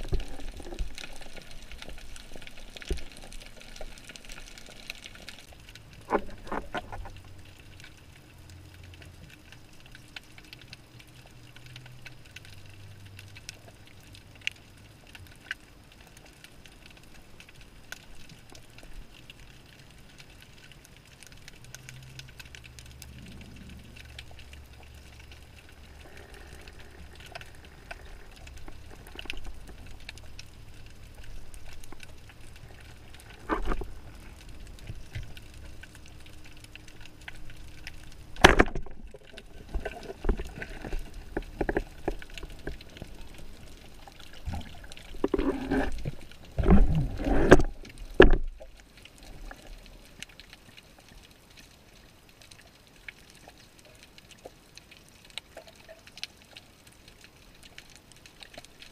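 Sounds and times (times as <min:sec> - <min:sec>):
faint crackling: 0:00.0 - 0:58.9
low underwater hum: 0:00.0 - 0:58.9
water splashing and gurgling: 0:00.0 - 0:58.9.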